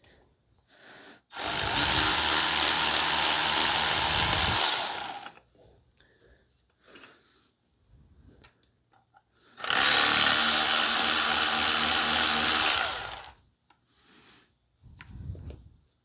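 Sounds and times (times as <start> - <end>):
cordless power tool running: 1.3 - 5.4, 9.6 - 13.4.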